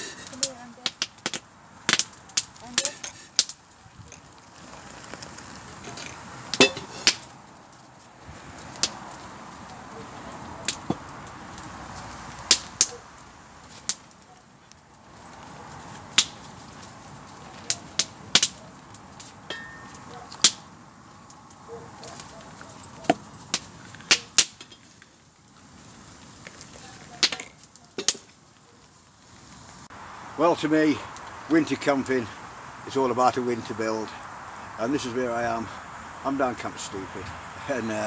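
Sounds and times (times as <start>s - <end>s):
sharp clicks and cracks: 0.2s - 7.8s, 8.6s - 9.8s, 10.6s - 13.0s, 13.6s - 25.2s, 26.3s - 28.4s
low rushing hiss: 28.2s - 38.0s.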